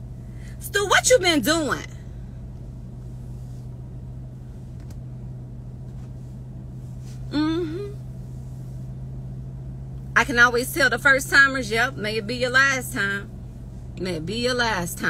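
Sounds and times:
car interior hum: 0.0 - 15.0
woman vocal sound: 7.3 - 8.0.

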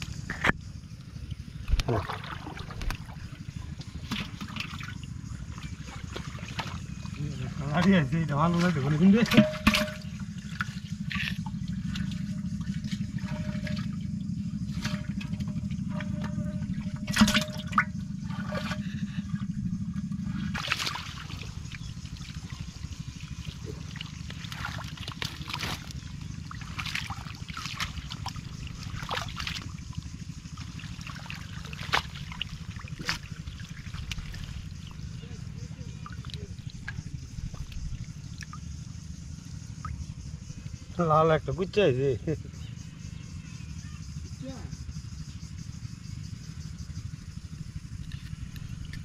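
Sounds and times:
steady low rumble: 0.0 - 41.0
water trickling and splashing: 1.2 - 40.8
short splashes and slaps: 1.6 - 14.0, 14.6 - 18.9, 20.3 - 35.2, 35.9 - 38.7.

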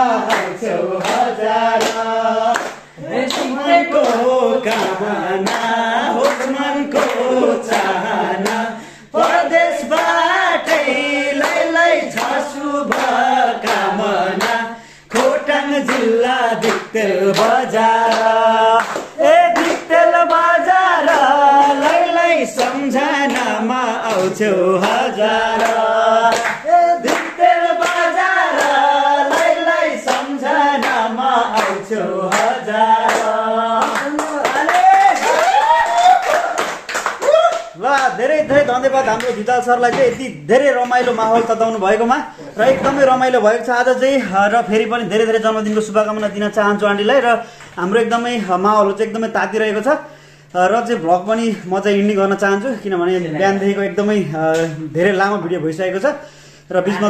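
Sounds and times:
men singing in chorus: 0.0 - 34.9
hands clapping: 0.0 - 41.7.

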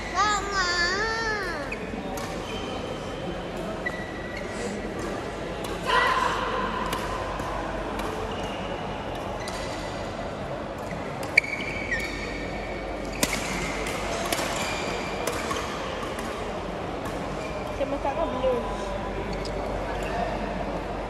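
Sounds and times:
faint background chatter: 0.0 - 21.0
racket hitting shuttlecock: 4.9 - 8.3, 13.1 - 17.3
shoes squeaking on floor: 11.4 - 12.4.

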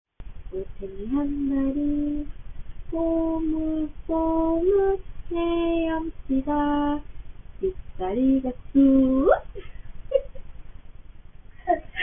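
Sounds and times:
woman singing a lullaby: 0.5 - 9.6.

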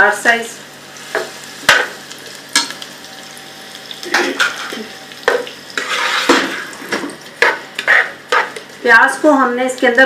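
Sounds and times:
onions sizzling in oil: 0.0 - 10.0
spoon scraping a pan: 4.0 - 8.8.

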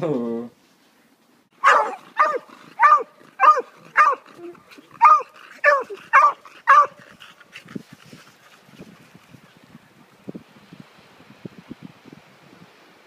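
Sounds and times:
dog barking: 1.6 - 4.2, 5.0 - 7.0.

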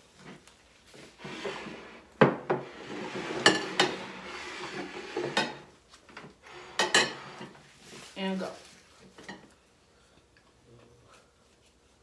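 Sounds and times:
dishes sliding on a table: 1.1 - 5.7, 6.4 - 7.6
bowls and plates clinking: 3.1 - 5.6, 6.6 - 7.6.

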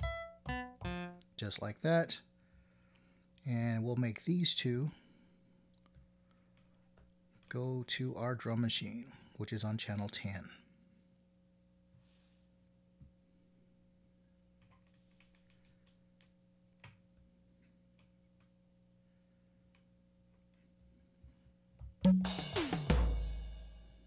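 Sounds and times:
faint electrical hum: 0.0 - 22.1
drum machine hits: 22.0 - 24.0.

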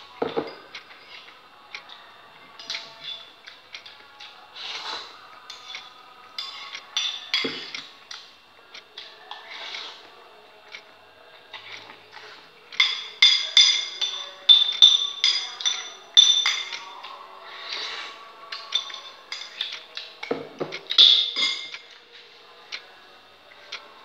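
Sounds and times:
metal spoon clinking in ceramic bowl: 12.8 - 17.1, 18.6 - 20.1, 20.9 - 21.9.

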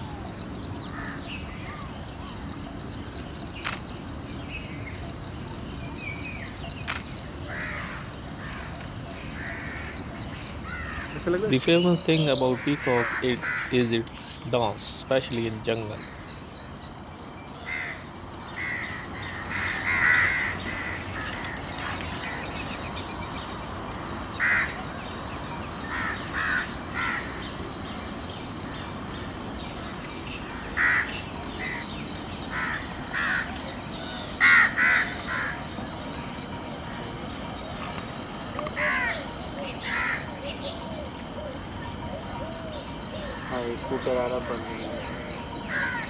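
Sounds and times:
high-pitched outdoor hiss: 0.0 - 46.0
harsh caw-like bird calls: 0.8 - 1.9, 6.9 - 11.4, 12.2 - 14.0, 17.6 - 22.7, 24.3 - 25.2, 25.8 - 27.6, 29.8 - 36.0, 38.6 - 41.6, 42.2 - 46.0.

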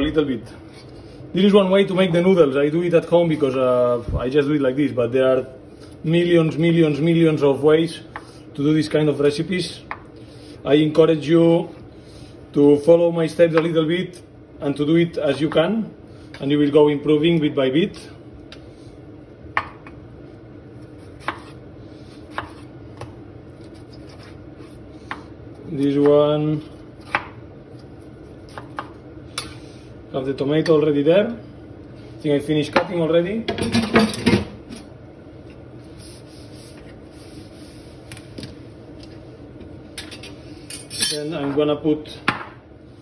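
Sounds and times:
cloth wiping a worktop: 35.8 - 38.0.

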